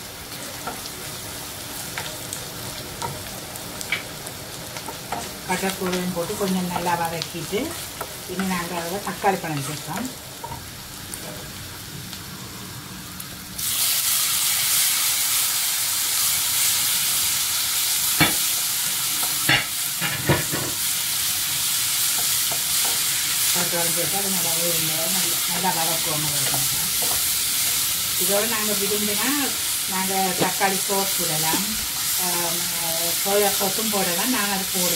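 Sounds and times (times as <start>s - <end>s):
food sizzling in hot oil: 0.0s - 34.9s.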